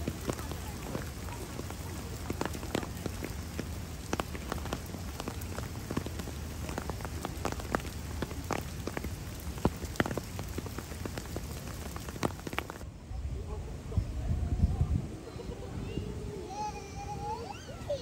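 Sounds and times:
raindrops tapping on surfaces: 0.0 - 12.8
steady rain hiss: 0.0 - 18.0.

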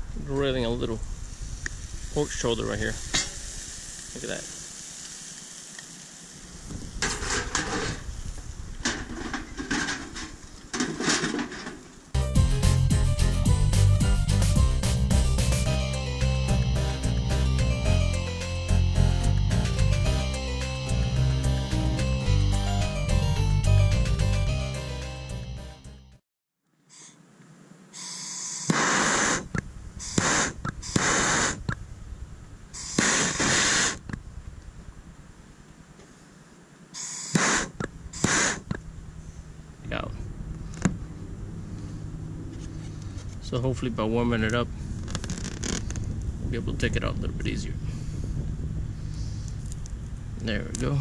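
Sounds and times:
metal sheet scraping and rattling: 6.9 - 8.1, 8.8 - 11.9
background music: 12.2 - 26.2
gas torch hissing blasts: 28.0 - 31.8, 32.8 - 34.1, 37.0 - 38.8.

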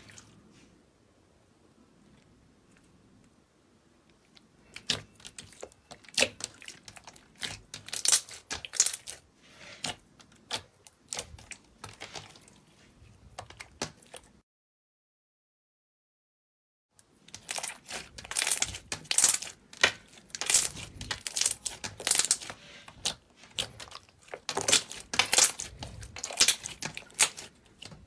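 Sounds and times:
slime crackling and popping: 4.8 - 9.2, 17.3 - 28.0.

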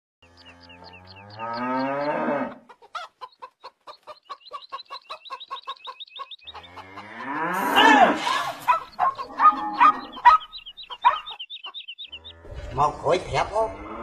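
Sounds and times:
chickens clucking: 0.2 - 13.5
chicken rising call: 6.5 - 11.2
high chirps: 7.6 - 12.4.

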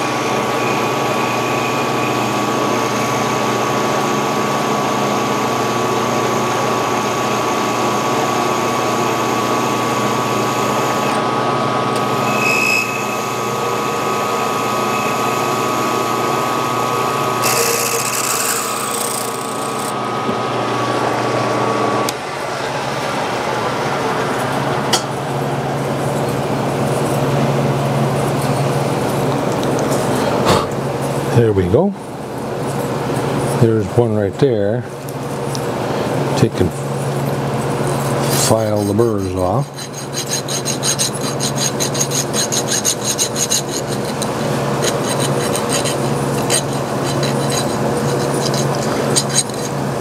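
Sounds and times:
drill press humming: 0.0 - 23.1
hand file rasping on metal: 17.4 - 19.9, 38.2 - 49.8.

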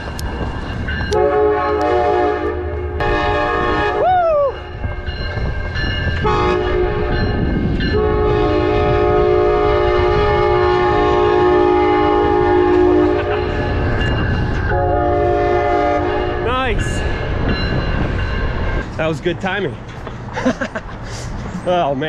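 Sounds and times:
train rumble: 0.0 - 22.0
locomotive chime horn: 1.0 - 17.0.

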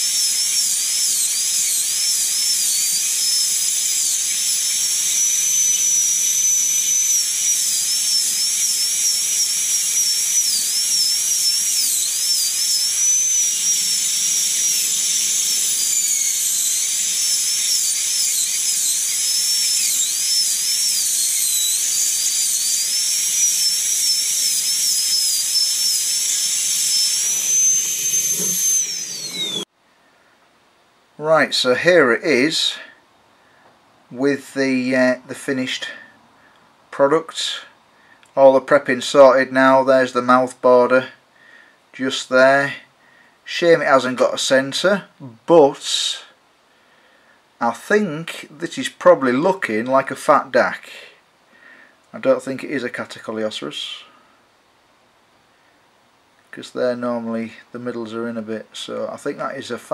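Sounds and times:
pneumatic air scribe whining: 0.0 - 29.7.

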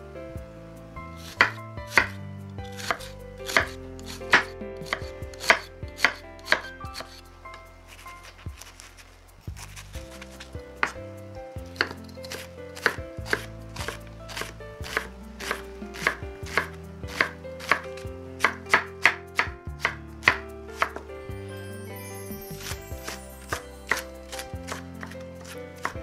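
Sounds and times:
knife chopping on wooden board: 1.3 - 7.2, 11.6 - 17.8, 18.4 - 21.1.

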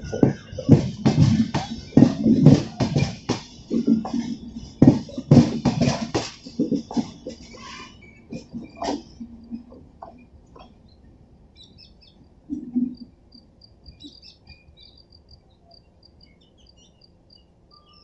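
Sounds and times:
train wheels clicking over rail joints: 0.0 - 10.8
high chirps: 0.0 - 11.0.

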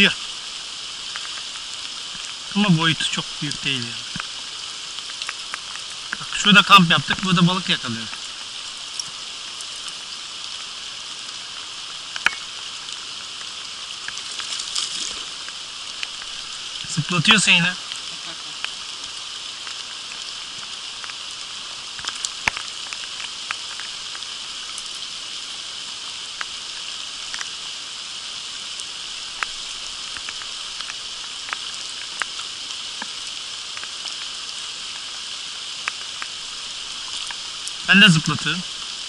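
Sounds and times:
rain falling on creek: 0.0 - 39.0
single raindrop ticks: 5.0 - 6.3, 18.6 - 25.0, 28.8 - 34.3.

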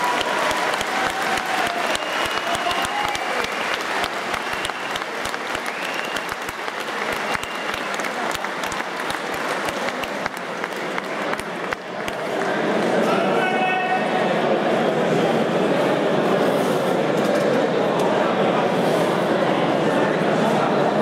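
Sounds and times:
audience applauding: 0.0 - 13.0.

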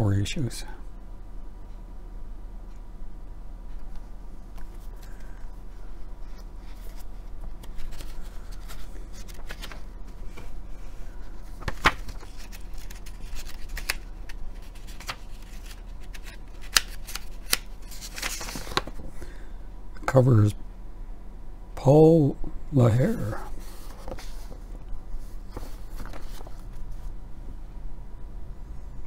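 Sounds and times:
low steady hum: 0.0 - 29.0
magazine pages rustling: 4.6 - 19.1, 23.5 - 27.1
page snaps: 11.6 - 19.0.

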